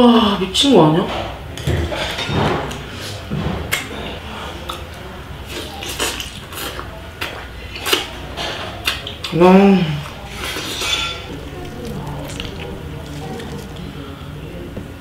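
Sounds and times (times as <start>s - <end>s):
person chewing: 4.6s - 8.2s, 10.0s - 14.3s.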